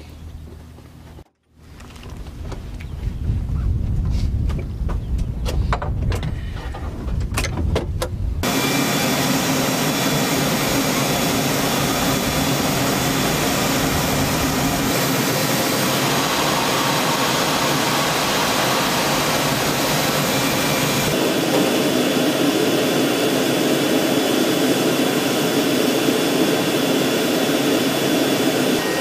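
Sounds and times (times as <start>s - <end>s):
helicopter turbine whine: 8.4s - 29.0s.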